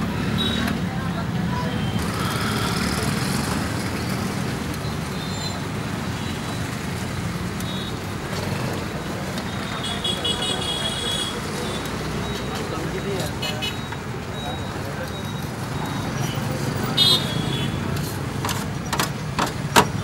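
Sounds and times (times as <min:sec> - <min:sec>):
street traffic rumble: 0:00.0 - 0:20.0
vehicle horn beeping: 0:09.7 - 0:11.8, 0:17.0 - 0:17.8.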